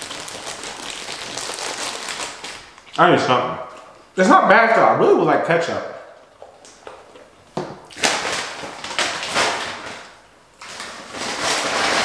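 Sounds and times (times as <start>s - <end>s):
food packaging crinkling: 0.0s - 3.0s, 6.4s - 12.0s.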